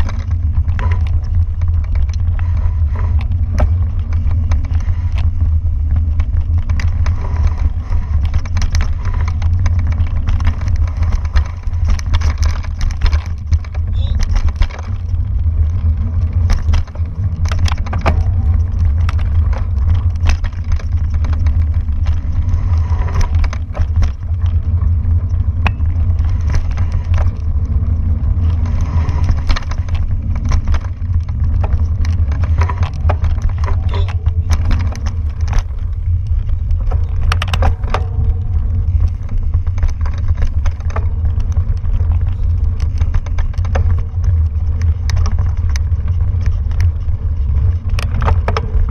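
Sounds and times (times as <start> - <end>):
bike rattles and clicks: 0.0 - 48.9
wind and vibration rumble on microphone: 0.0 - 48.9.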